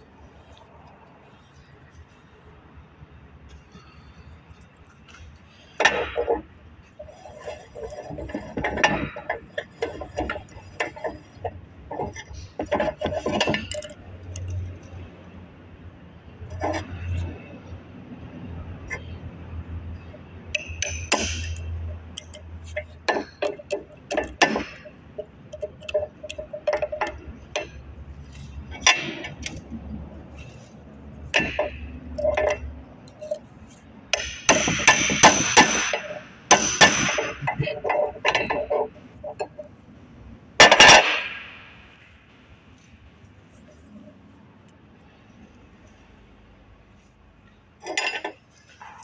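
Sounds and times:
hammer striking metal housing: 34.1s - 38.7s.

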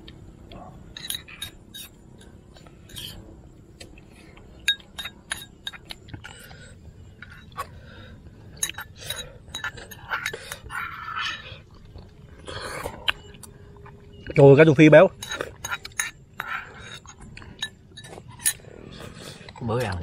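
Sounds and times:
metal spoons clinking on bowls: 0.9s - 2.3s, 4.6s - 6.0s, 8.5s - 11.5s, 14.4s - 18.7s.

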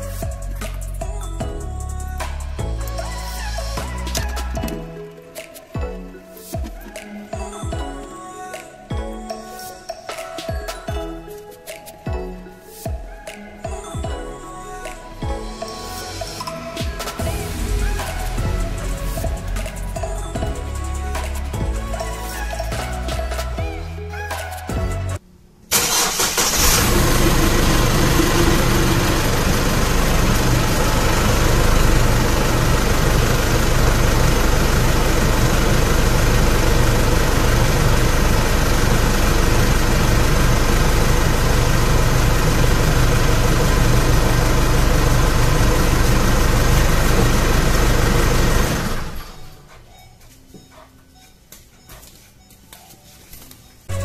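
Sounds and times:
diesel engine starting and idling: 0.0s - 5.1s, 14.8s - 23.8s, 25.7s - 49.9s.

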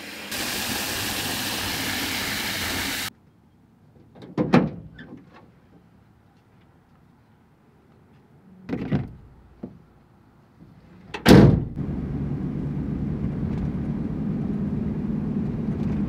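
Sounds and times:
engine and road noise in cabin: 11.2s - 16.0s.

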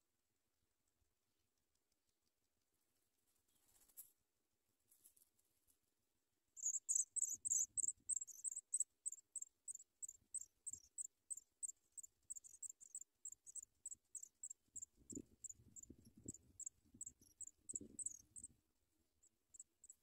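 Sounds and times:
nestlings cheeping: 6.6s - 18.5s.

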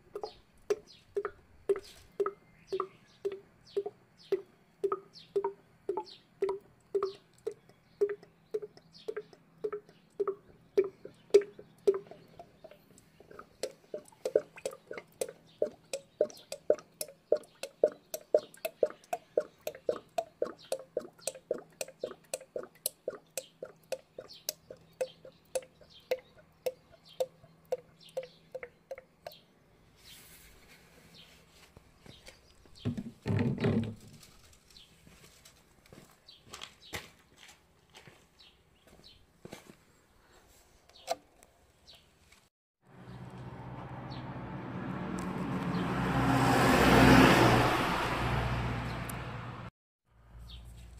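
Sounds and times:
oil glugging from plastic bottle: 0.1s - 26.8s, 32.9s - 34.2s.

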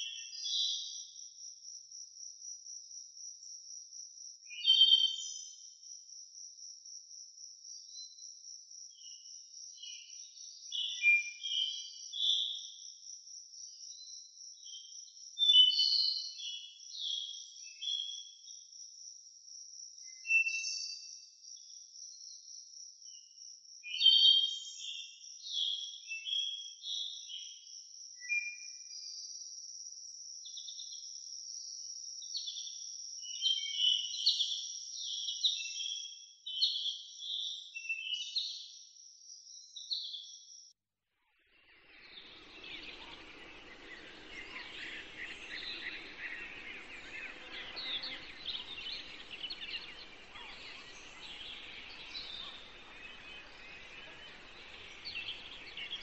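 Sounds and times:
bird chirps and twitters: 41.3s - 56.0s
high insect trill: 42.1s - 56.0s.

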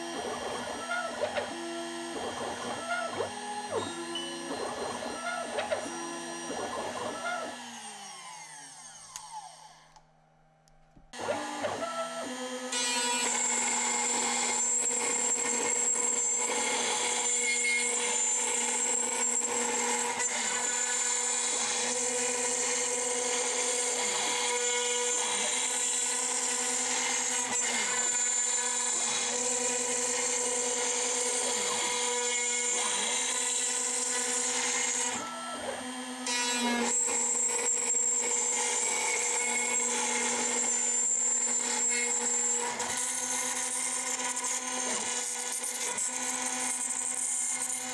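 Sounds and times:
bit rasping through wood: 0.0s - 7.9s
router spindle whining: 0.0s - 10.0s, 11.2s - 47.9s.

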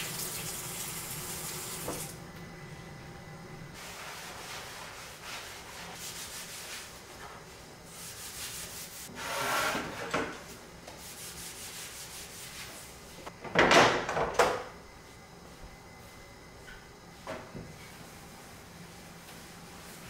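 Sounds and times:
cloth wiping wooden trays: 3.8s - 9.1s.

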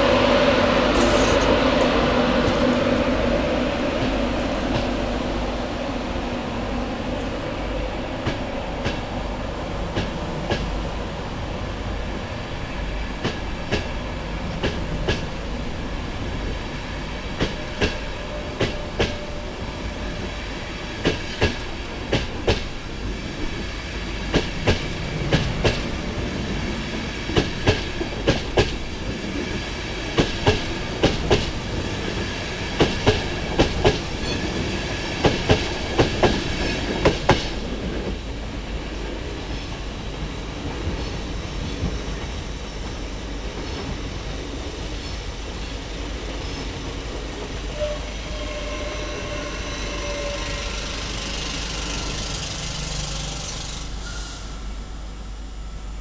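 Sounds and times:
train rumble: 0.0s - 56.0s
train wheels clicking over joints: 0.9s - 2.8s, 24.3s - 26.1s, 27.3s - 29.5s, 30.1s - 38.2s, 50.2s - 54.0s.

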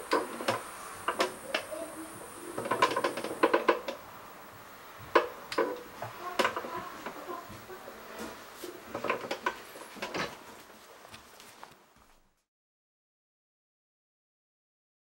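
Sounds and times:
chair creaking and clicking: 0.0s - 1.8s, 2.5s - 4.0s, 5.1s - 11.8s.

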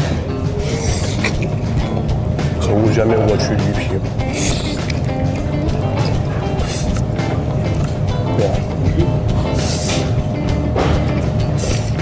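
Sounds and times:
background music: 0.0s - 12.0s
person slurping noodles: 4.2s - 7.1s.

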